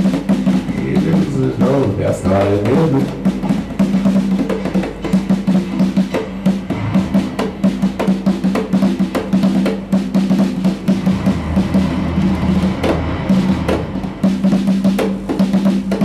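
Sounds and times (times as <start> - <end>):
fast hand drumming: 0.0 - 16.0
low held note: 10.6 - 14.8.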